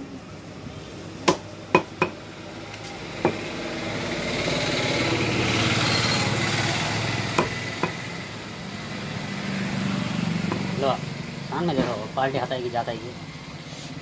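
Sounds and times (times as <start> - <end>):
cleaver chopping on wooden block: 1.2 - 2.2, 7.3 - 8.0, 10.5 - 10.7
small motor engine passing: 2.3 - 11.5.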